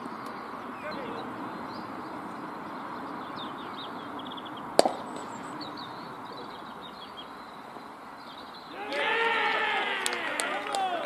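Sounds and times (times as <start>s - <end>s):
birds chirping: 0.0s - 11.0s
cricket bat striking ball: 4.8s - 5.4s.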